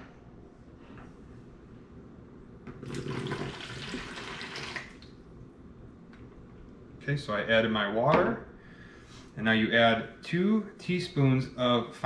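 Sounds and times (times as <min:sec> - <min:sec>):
water pouring into plastic tub: 0:02.8 - 0:05.1.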